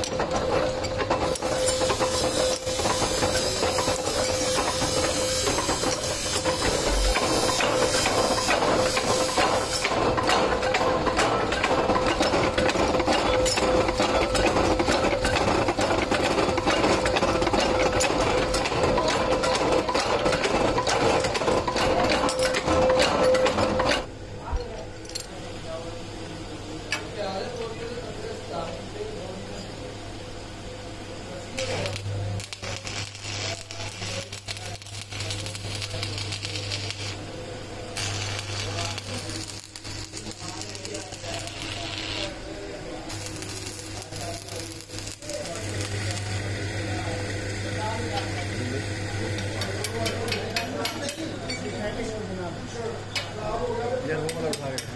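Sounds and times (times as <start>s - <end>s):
welding arc crackling and sizzling: 0.0s - 24.1s, 31.1s - 52.0s
metalworking machine humming: 0.0s - 54.9s.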